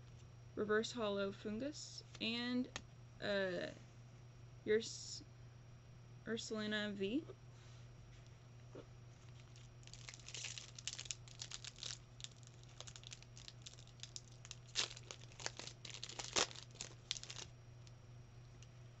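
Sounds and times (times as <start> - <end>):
foil wrapper tearing and crinkling: 9.4 - 17.5.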